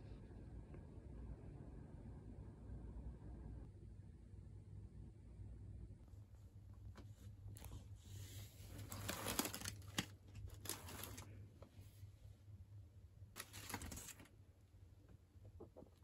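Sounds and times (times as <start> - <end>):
low steady hum: 0.0 - 16.0
bag and contents rustling: 8.6 - 11.3.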